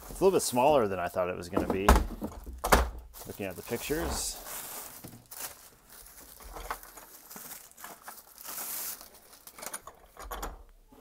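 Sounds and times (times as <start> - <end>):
packaging rustling: 3.1 - 10.2.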